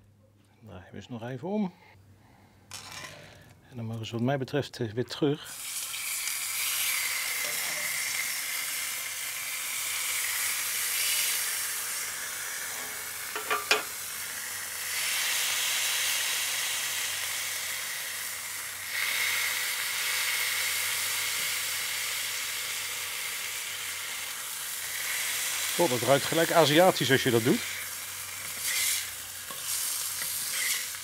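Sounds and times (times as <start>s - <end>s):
burger patties sizzling on griddle: 5.5s - 31.0s
metal spatula knocking on plate: 13.4s - 13.9s.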